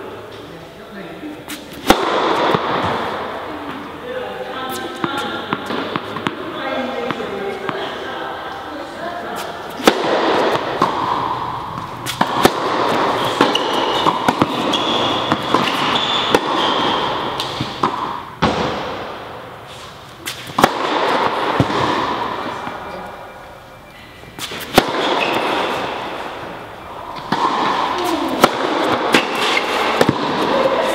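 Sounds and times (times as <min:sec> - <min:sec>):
indoor background noise: 0:00.0 - 0:30.9
tennis ball struck by rackets: 0:01.5 - 0:03.8, 0:04.7 - 0:07.8, 0:09.4 - 0:19.2, 0:20.2 - 0:22.8, 0:24.4 - 0:26.3, 0:27.2 - 0:30.8.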